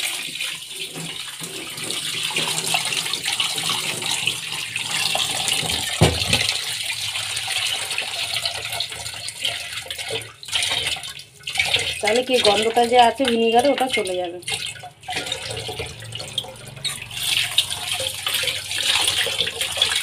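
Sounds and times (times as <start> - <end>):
tap water running and splashing: 0.0 - 20.0
dull thump: 6.0 - 6.5.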